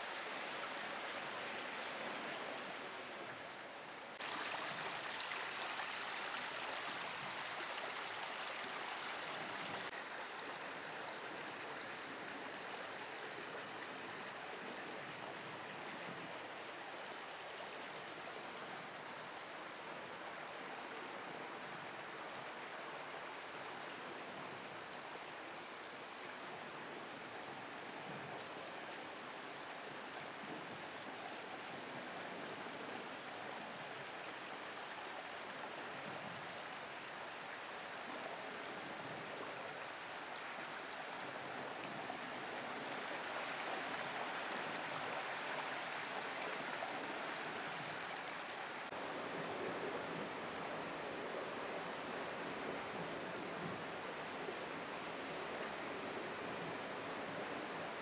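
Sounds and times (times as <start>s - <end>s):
water rushing over rocks: 4.1s - 14.2s.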